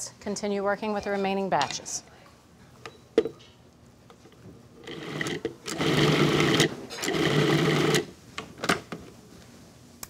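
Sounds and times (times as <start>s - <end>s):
food processor pulsing: 4.9s - 8.1s.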